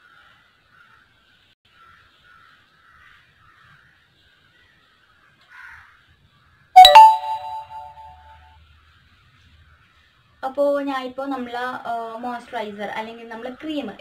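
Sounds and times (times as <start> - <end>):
loud two-tone chime: 6.8 - 8.2.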